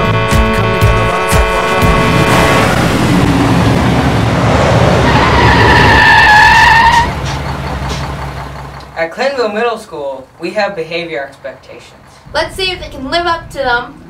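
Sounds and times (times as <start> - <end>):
engine running low: 0.0 - 14.0
vehicle skidding with squeal: 2.3 - 8.4.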